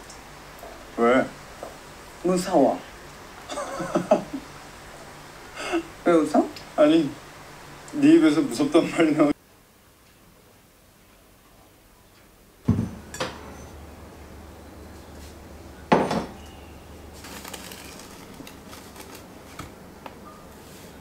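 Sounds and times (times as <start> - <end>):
glass knocking on wood: 12.7 - 13.4.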